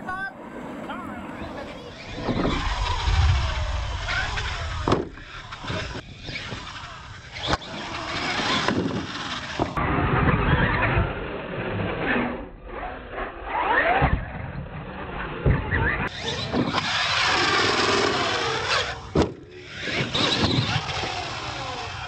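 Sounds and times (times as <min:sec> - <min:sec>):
electric motors whining: 0:01.2 - 0:09.8, 0:15.7 - 0:22.0
trucks thumping on dirt: 0:04.4 - 0:06.7, 0:15.5 - 0:21.2.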